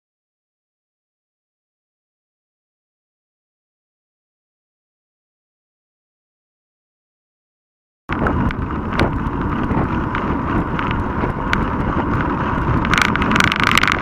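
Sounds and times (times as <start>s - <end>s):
bike knocks and rattles: 8.1s - 14.0s
wind buffeting microphone: 8.1s - 14.0s.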